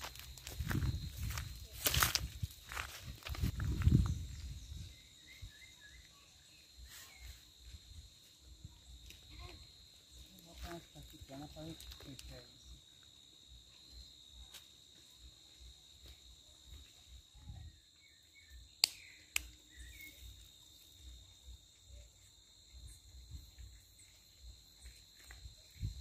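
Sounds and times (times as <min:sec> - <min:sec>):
high-pitched insect trill: 0:00.0 - 0:26.0.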